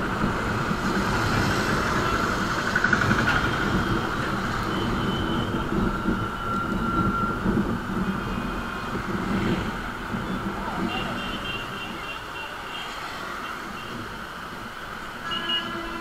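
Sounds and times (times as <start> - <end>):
wind rushing over microphone: 0.0 - 12.3.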